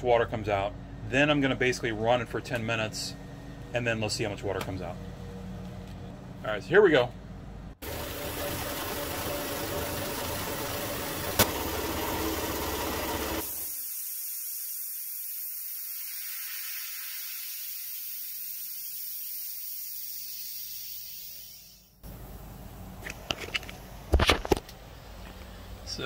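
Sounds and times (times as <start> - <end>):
air compressor motor running: 7.8 - 22.4
compressed air hissing: 13.3 - 22.1.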